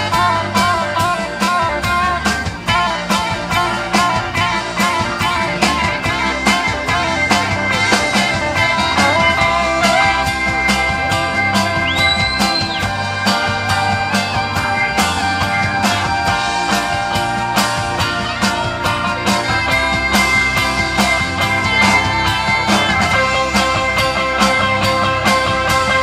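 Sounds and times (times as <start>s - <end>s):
drum kit beat: 0.0s - 26.0s
electric bass: 0.0s - 26.0s
electric guitar: 0.0s - 26.0s.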